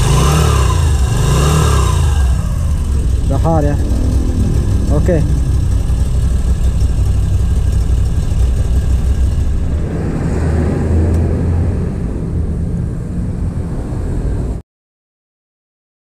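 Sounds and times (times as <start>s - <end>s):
motorcycle engine running: 0.0s - 10.4s.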